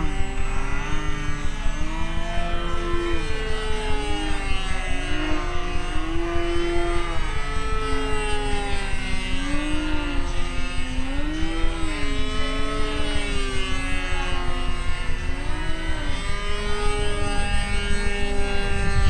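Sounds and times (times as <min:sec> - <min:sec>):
model airplane engine passing: 0:00.0 - 0:19.0
low rumble: 0:17.6 - 0:19.0.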